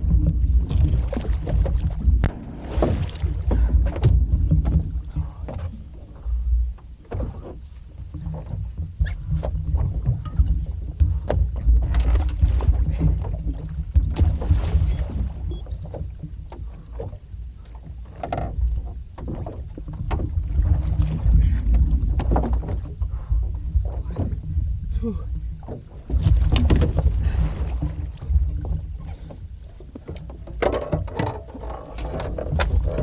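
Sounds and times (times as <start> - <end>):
wind on microphone: 0.0 - 7.4, 19.7 - 30.5
boat rumble: 0.0 - 33.0
water splashing against hull: 0.0 - 33.0.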